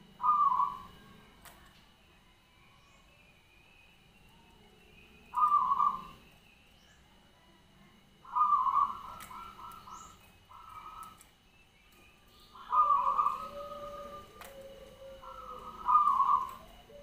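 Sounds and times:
dove cooing: 0.0s - 2.3s, 4.4s - 6.4s, 8.2s - 11.3s, 12.3s - 17.0s.

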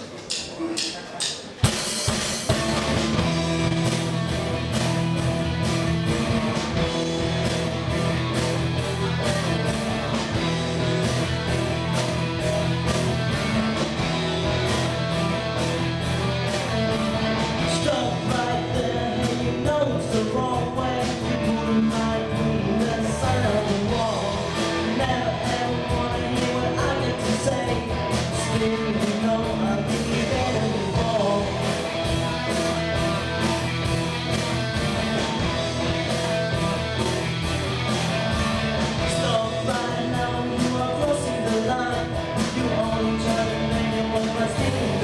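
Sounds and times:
drum kit: 0.0s - 45.0s
bass guitar: 1.6s - 45.0s
electric guitars: 1.6s - 45.0s
male singer: 17.5s - 32.0s, 39.0s - 45.0s.

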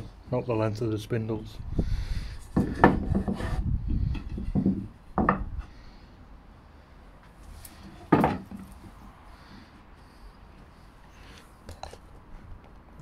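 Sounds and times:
wood sliding and rubbing: 2.3s - 5.7s
wood knocking on bench: 2.6s - 3.5s, 4.2s - 5.5s, 8.1s - 8.6s.

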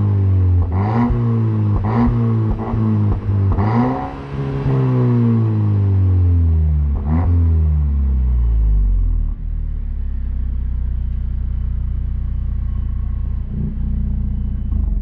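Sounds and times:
car engine idling deeply: 0.0s - 15.0s.

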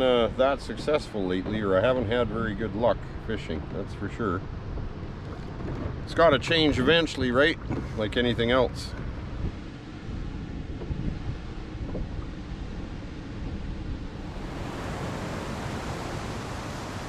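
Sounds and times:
water lapping against boat hull: 0.8s - 2.6s, 4.4s - 8.2s, 10.7s - 17.0s
wind on microphone: 9.2s - 17.0s
whitewater creek rushing: 14.2s - 17.0s.

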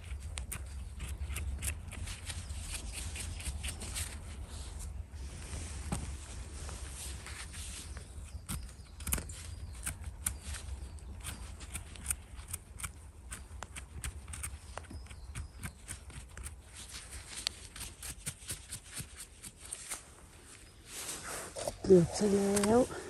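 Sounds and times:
footsteps on dry leaves: 19.7s - 23.0s.

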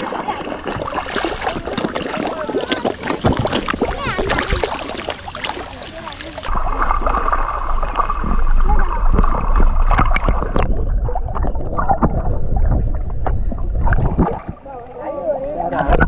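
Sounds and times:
water sloshing and gurgling: 0.0s - 16.0s
heavy low rumble: 6.5s - 14.2s.

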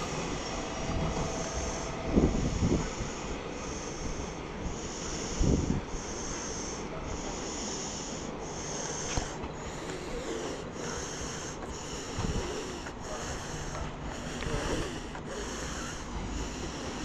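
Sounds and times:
wind buffeting the microphone: 0.0s - 6.2s, 11.5s - 17.0s
high pulsing hiss: 0.0s - 17.0s.

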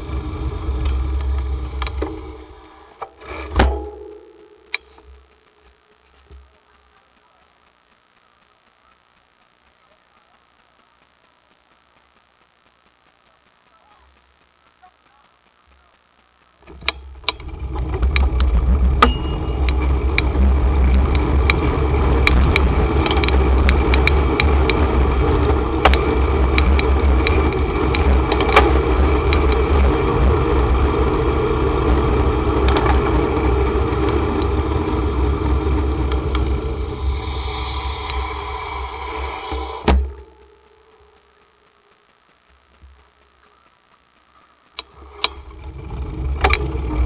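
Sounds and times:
sharp clicks: 0.2s - 30.4s, 31.8s - 47.0s
wind and road rumble: 17.1s - 40.1s, 45.0s - 47.0s.

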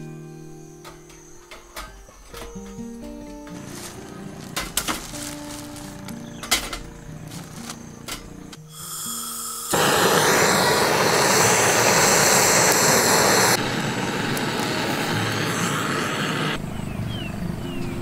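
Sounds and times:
blowtorch hissing: 3.6s - 16.6s.

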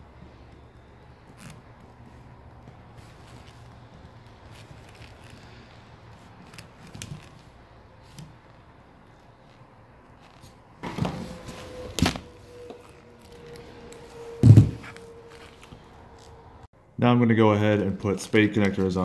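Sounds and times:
heavy thump: 14.4s - 14.9s.

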